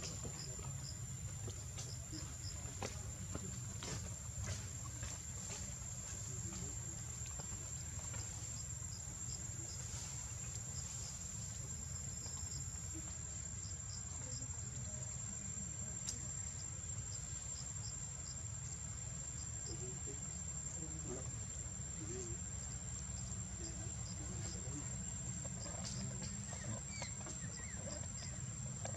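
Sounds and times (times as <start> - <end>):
insects droning: 0.0 - 28.9.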